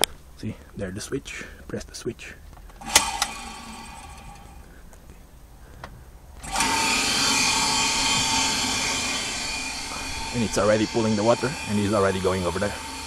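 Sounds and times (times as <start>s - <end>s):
water pump motor whine: 2.8s - 4.6s, 6.4s - 13.0s.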